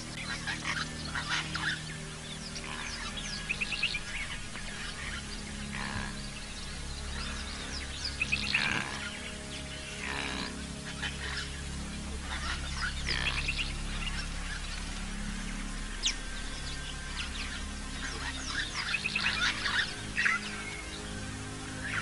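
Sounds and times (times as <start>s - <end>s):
low steady hum: 0.0s - 22.0s
rapid repeated bird notes: 0.0s - 22.0s
wild birds chirping: 0.0s - 22.0s.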